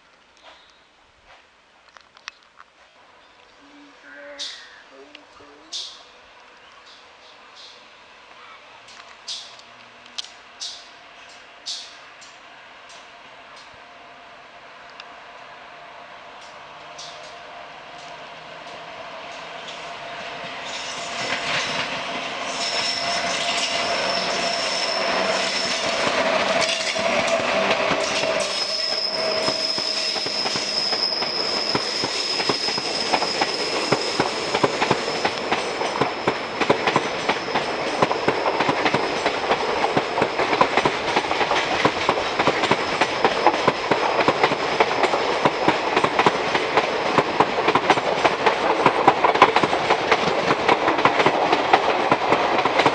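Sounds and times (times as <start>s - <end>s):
electric locomotive whining: 3.0s - 52.9s
train wheels clattering: 18.0s - 52.9s.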